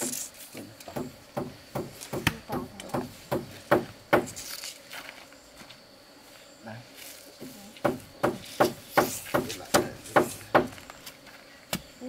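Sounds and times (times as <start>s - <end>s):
rapid strikes on wood: 0.9s - 4.4s, 7.8s - 10.8s.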